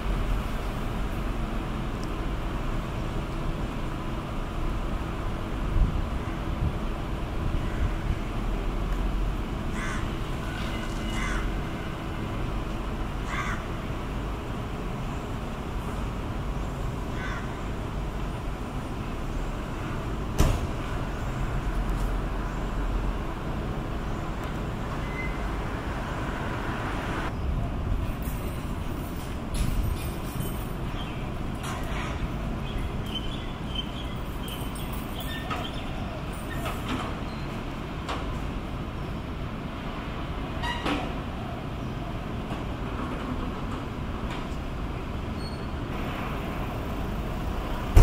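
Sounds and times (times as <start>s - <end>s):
low street and wind rumble: 0.0s - 48.0s
harsh bird caws: 9.7s - 11.6s, 13.2s - 13.8s, 17.1s - 17.7s.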